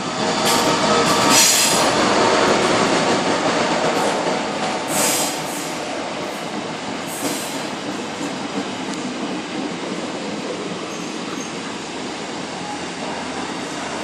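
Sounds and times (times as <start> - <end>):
train wheels rumbling on track: 0.0 - 14.0.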